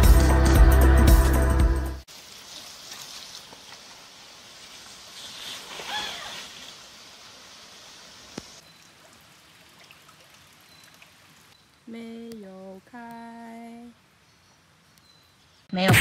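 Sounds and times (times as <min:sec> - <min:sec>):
bicycle riding through water: 0:02.1 - 0:08.8
water running over gravel: 0:02.1 - 0:13.9.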